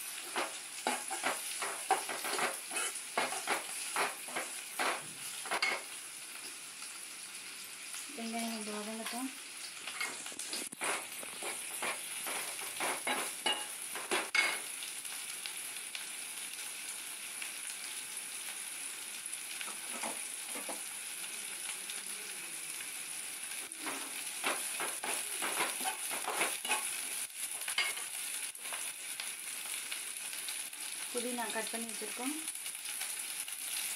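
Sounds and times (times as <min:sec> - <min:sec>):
food sizzling in a pan: 0:00.0 - 0:33.9
spoon scraping a pan: 0:00.1 - 0:05.9, 0:09.9 - 0:14.7, 0:23.6 - 0:28.9.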